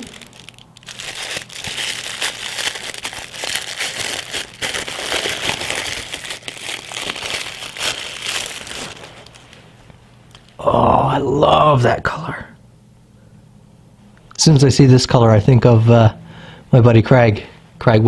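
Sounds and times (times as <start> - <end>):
paper wrapping crinkling: 0.0 - 9.9.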